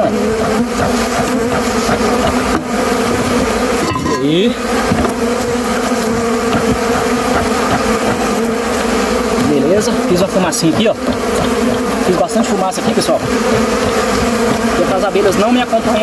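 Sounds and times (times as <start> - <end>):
bees buzzing: 0.0 - 16.0
bee whizzing past: 0.1 - 10.1, 13.1 - 14.8.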